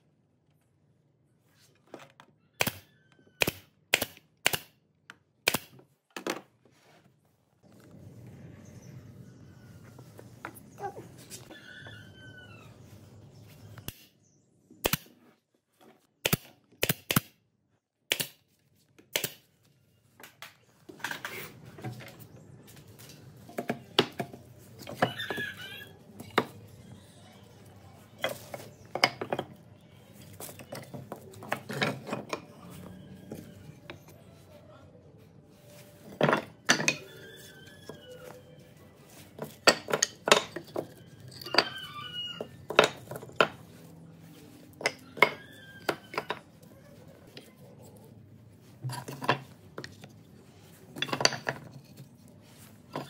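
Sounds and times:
tools and wood knocking: 23.0s - 26.7s, 28.2s - 34.2s, 36.0s - 38.4s, 39.0s - 47.6s, 48.7s - 53.0s.

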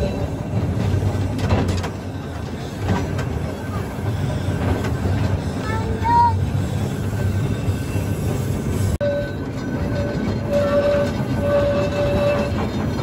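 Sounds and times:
train wheels rumbling and clattering: 0.0s - 13.0s
high squeal: 5.7s - 12.9s.

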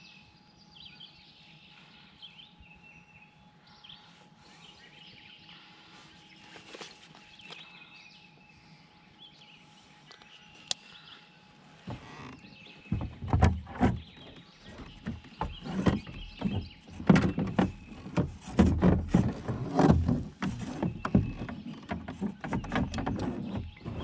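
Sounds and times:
knocks and bumps in kayak hull: 11.9s - 24.0s.

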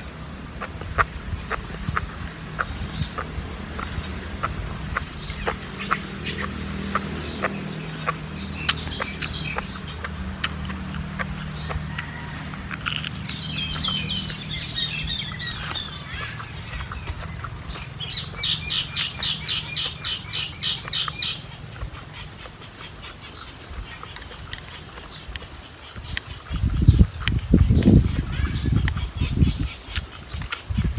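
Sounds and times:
birds chirping: 0.0s - 30.9s
mouth clicks of chewing: 6.4s - 14.3s, 29.9s - 30.7s
rapid high bird call: 11.4s - 24.2s.

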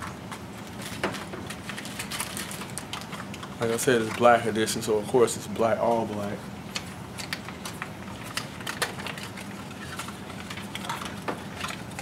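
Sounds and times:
steady low hum: 0.0s - 12.0s
packaging rustling: 0.7s - 4.4s, 6.7s - 12.0s.

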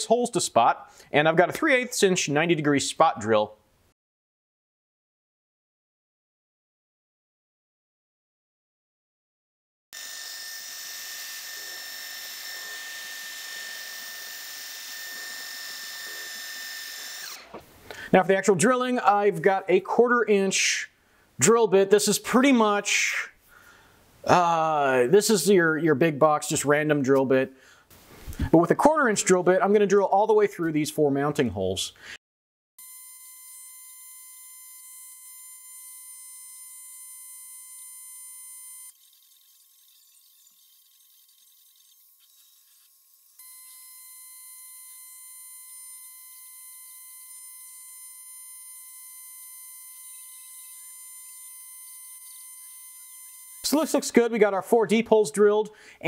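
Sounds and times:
milling machine high-pitched whine: 10.0s - 17.4s, 32.8s - 53.8s.

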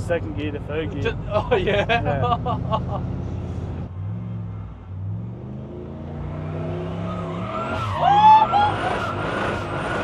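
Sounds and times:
car engine revving hard: 5.0s - 10.0s.

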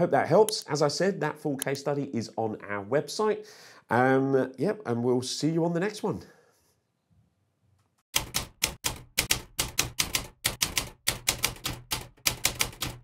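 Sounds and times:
typewriter keys clacking: 8.2s - 13.0s.

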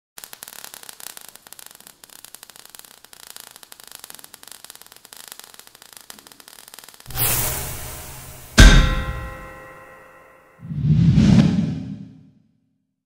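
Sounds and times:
crackling fizzing sparks: 0.2s - 8.6s
steady hiss: 0.2s - 9.6s.

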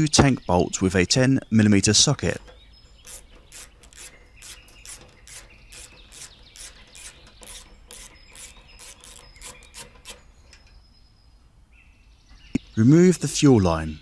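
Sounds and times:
ratchet driver clicking: 2.5s - 10.8s.

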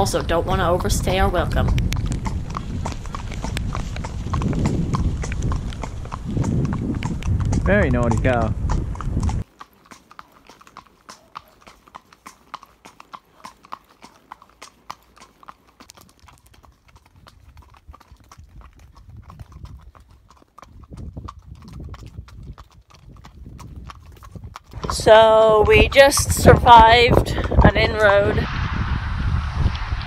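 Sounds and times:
hooves clip-clopping on pavement: 0.0s - 28.4s
low rumble: 24.7s - 30.0s.

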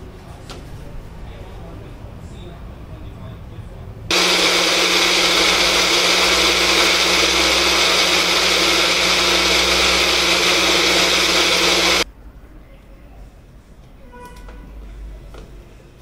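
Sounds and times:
blender motor running: 4.1s - 12.0s.

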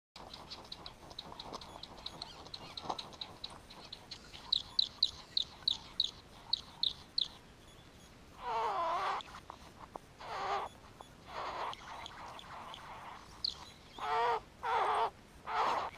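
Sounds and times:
harsh rasping bird call: 10.2s - 15.9s.

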